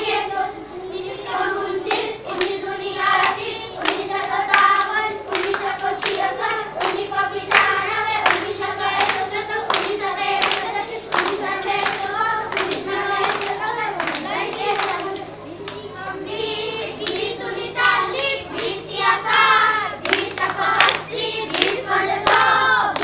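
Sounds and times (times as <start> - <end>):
children singing in unison: 0.0 - 23.0
hands clapping to a beat: 1.9 - 6.2, 6.8 - 15.8, 18.2 - 23.0.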